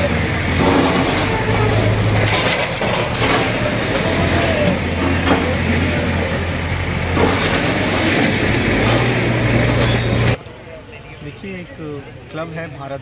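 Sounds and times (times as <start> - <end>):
diesel engine running under load: 0.0 - 10.4
falling masonry crashing: 0.0 - 10.4.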